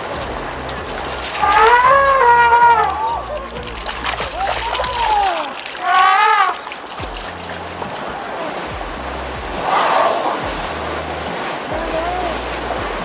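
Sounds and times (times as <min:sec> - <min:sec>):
water splashing: 0:00.0 - 0:13.0
elephant trumpeting: 0:00.4 - 0:06.9, 0:09.5 - 0:10.7
rough elephant call burst: 0:01.4 - 0:03.7, 0:05.2 - 0:06.7.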